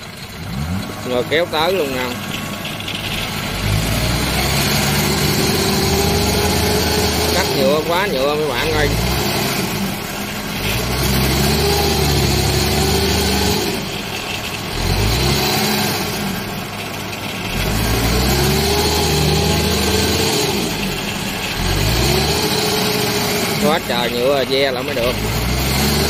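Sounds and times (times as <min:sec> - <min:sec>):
combine harvester engine revving: 0:00.0 - 0:26.0
tracked machine engine revving: 0:00.0 - 0:26.0.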